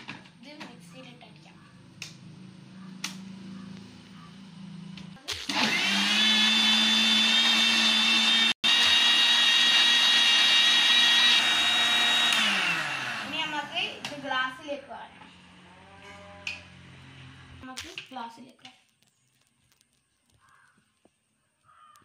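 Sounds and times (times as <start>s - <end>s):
mixer grinder whining: 5.2s - 15.7s.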